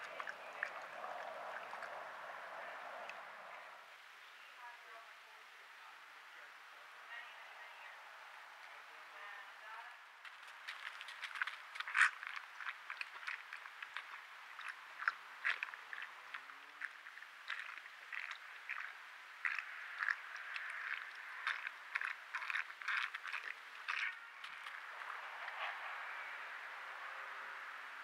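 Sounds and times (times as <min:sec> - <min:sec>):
animals crunching and chewing food: 0:00.0 - 0:03.8, 0:10.2 - 0:27.1.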